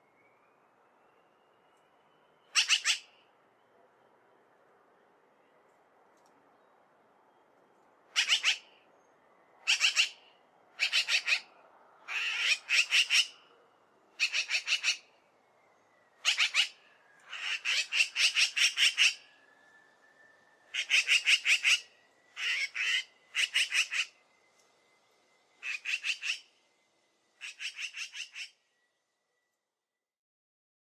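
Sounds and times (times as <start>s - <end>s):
magpie rattle call: 2.5s - 3.1s, 8.1s - 8.7s, 9.6s - 10.2s, 10.8s - 11.5s, 12.1s - 13.4s, 14.2s - 15.0s, 16.2s - 19.2s, 20.7s - 24.2s, 25.6s - 26.5s, 27.4s - 28.6s.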